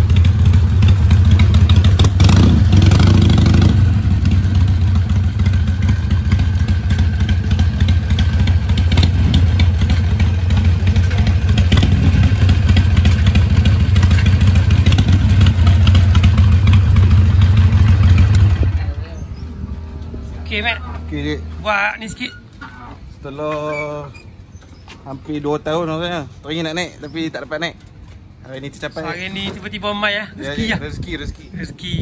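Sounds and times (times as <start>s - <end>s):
motorcycle engine idling: 0.0s - 19.8s.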